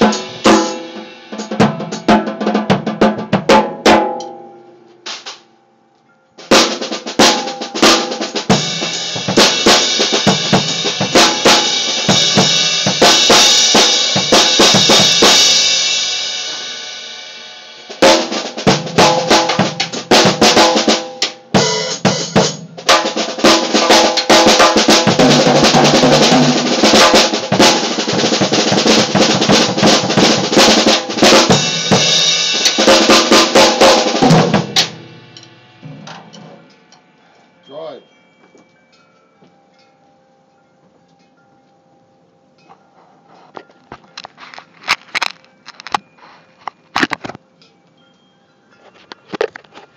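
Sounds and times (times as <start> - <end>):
cymbals ringing: 0.0 - 2.2, 4.1 - 44.2, 45.4 - 49.9
drum kit played hard: 0.0 - 4.4, 5.0 - 5.5, 6.4 - 36.7.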